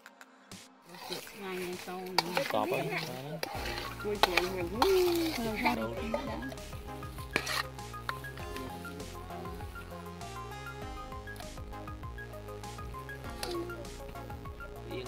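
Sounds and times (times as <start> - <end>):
background music: 0.0 - 15.0
spoon and can clinking in metal bowl: 0.9 - 6.6.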